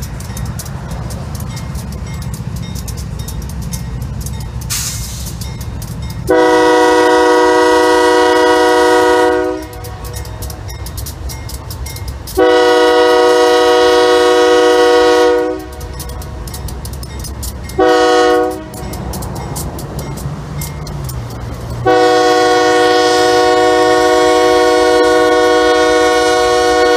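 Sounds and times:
locomotive low rumble: 0:00.0 - 0:26.9
locomotive air horn blasts: 0:06.3 - 0:10.2, 0:12.3 - 0:15.9, 0:17.8 - 0:18.8, 0:21.8 - 0:26.9.

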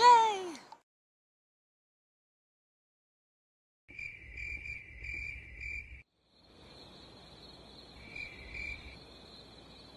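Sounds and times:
insect chirping: 0:03.9 - 0:09.9.

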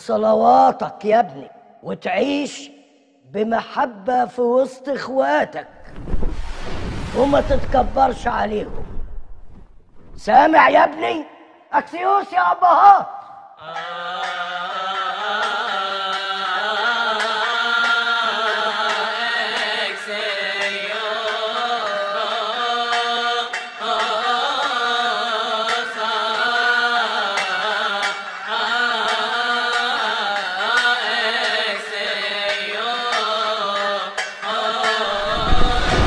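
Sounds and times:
men chanting: 0:13.6 - 0:36.0.

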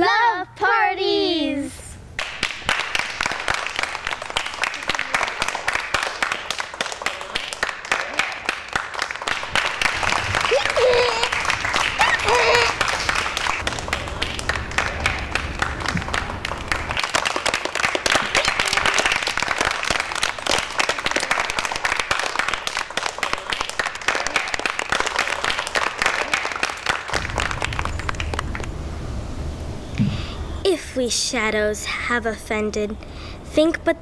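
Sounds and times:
children clapping: 0:02.2 - 0:28.8.

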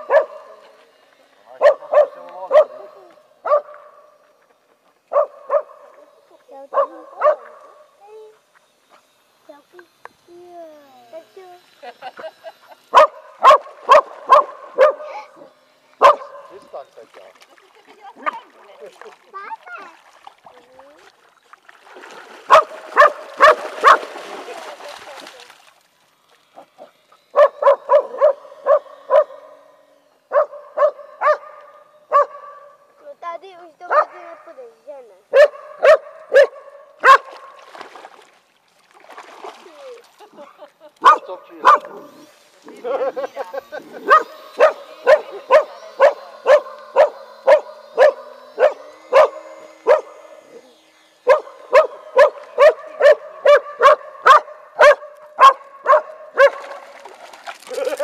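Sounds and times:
dog barking: 0:00.0 - 0:00.6, 0:01.6 - 0:04.1, 0:05.1 - 0:05.9, 0:06.7 - 0:07.8, 0:13.0 - 0:15.1, 0:16.0 - 0:16.6, 0:22.5 - 0:24.1, 0:27.3 - 0:29.6, 0:30.3 - 0:32.7, 0:33.9 - 0:34.4, 0:35.3 - 0:37.5, 0:41.0 - 0:42.0, 0:44.0 - 0:50.2, 0:51.3 - 0:56.8.

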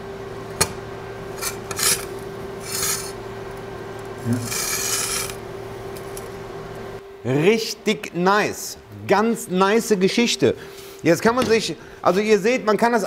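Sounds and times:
sheet metal scraping on workbench: 0:01.4 - 0:03.2, 0:04.3 - 0:05.4.

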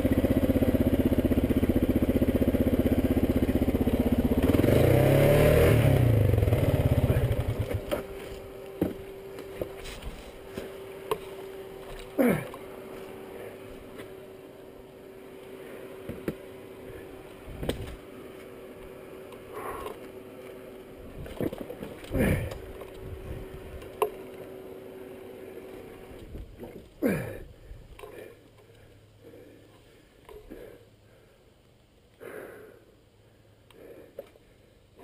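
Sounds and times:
motorcycle engine revving: 0:00.0 - 0:27.4.

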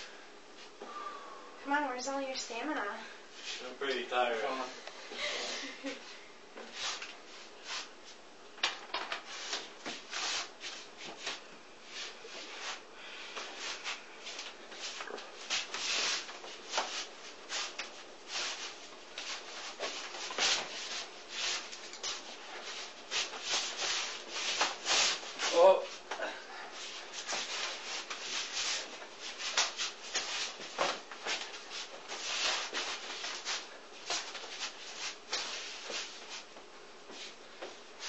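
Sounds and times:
forearms brushing and slapping: 0:13.4 - 0:26.2, 0:26.8 - 0:38.0.

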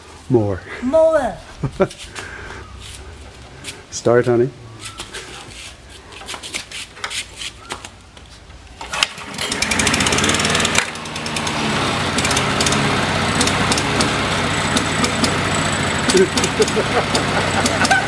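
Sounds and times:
starter cord pull: 0:08.8 - 0:11.6, 0:12.2 - 0:15.4, 0:16.0 - 0:18.0
lawn mower engine running: 0:08.8 - 0:18.0.

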